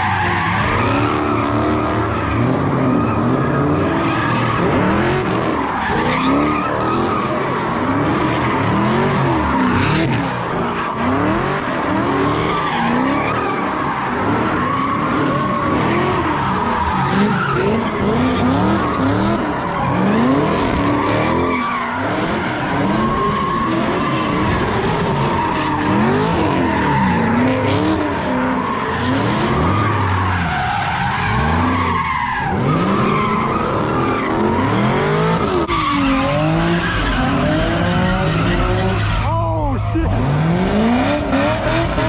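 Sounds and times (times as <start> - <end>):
tyres squealing on pavement: 0.0 - 39.4
car engine revving: 0.0 - 42.0.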